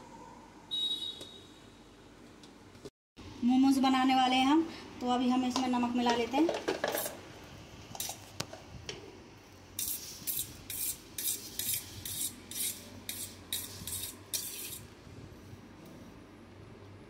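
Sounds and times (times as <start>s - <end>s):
spoon scraping steel plate: 9.8s - 14.8s.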